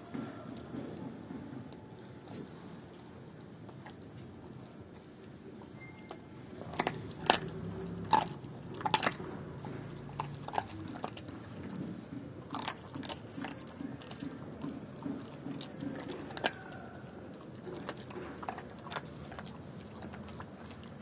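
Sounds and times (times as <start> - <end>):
dog chewing and crunching: 0.0 - 21.0
bones cracking: 6.6 - 21.0.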